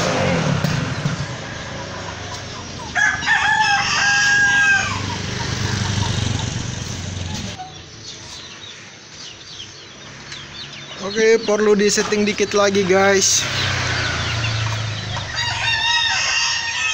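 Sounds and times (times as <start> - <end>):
rooster crowing: 2.9 - 5.2, 15.2 - 16.9
motorcycle engine running: 5.0 - 7.6.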